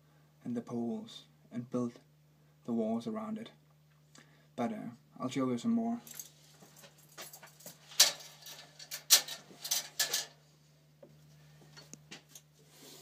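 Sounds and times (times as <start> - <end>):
metal objects clattering: 6.1 - 10.4.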